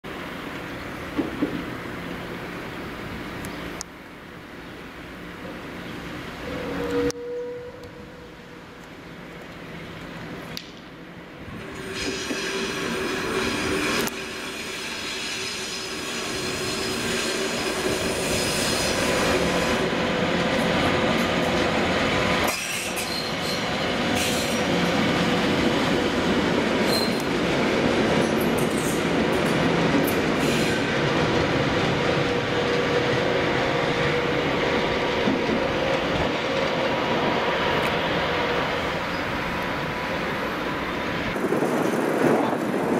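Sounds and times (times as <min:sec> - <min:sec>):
diesel locomotive engine whine: 0:00.1 - 0:42.9
train wheels squealing: 0:11.8 - 0:19.8, 0:22.4 - 0:24.7, 0:26.8 - 0:27.4, 0:28.2 - 0:29.1, 0:30.1 - 0:30.9, 0:39.0 - 0:39.4.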